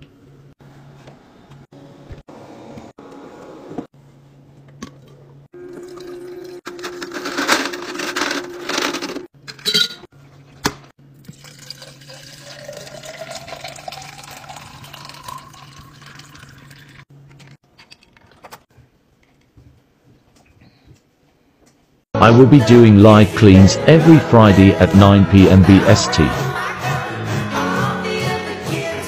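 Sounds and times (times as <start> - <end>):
drink pouring into glass: 5.6 - 6.6, 11.2 - 17.0
ice clinking into glass: 11.2 - 17.0.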